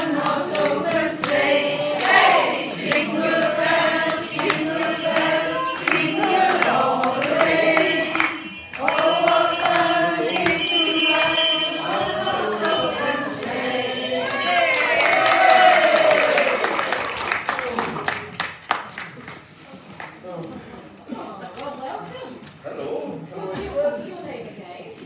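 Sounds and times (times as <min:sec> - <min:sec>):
group of voices singing: 0:00.0 - 0:16.5
jingling percussion shaken: 0:00.5 - 0:16.4.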